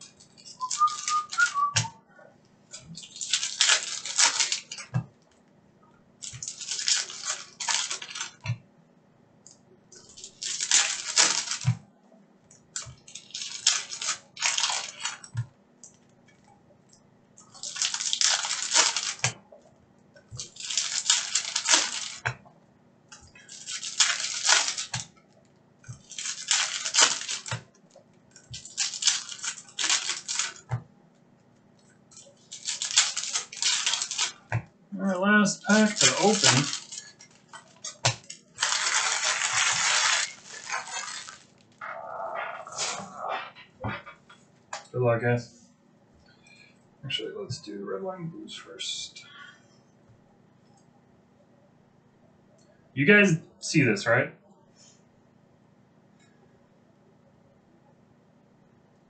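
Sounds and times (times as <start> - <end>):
cards shuffling: 0.2 - 1.9, 2.8 - 5.1, 6.2 - 8.5, 10.0 - 11.8, 17.5 - 19.4, 20.4 - 22.4, 23.3 - 25.1, 25.9 - 27.7, 28.5 - 30.8, 32.3 - 34.6, 35.6 - 44.2
wrappers crinkling and tearing: 0.3 - 1.9, 2.8 - 4.9, 6.2 - 8.5, 10.0 - 11.8, 12.7 - 15.4, 17.4 - 19.4, 20.3 - 22.3, 23.2 - 30.8, 32.1 - 34.6, 35.4 - 43.2.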